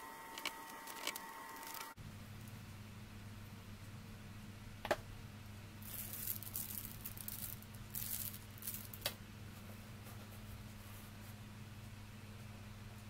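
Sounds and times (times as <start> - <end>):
plastic bag crinkling: 5.8 - 9.1.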